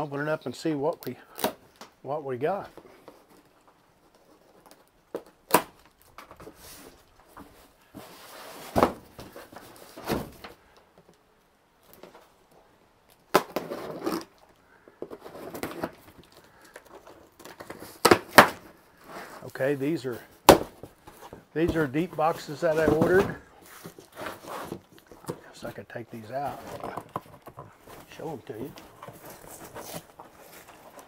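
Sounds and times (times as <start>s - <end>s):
cardboard scraping and rustling: 6.2s - 10.6s, 13.4s - 14.3s, 15.0s - 31.0s.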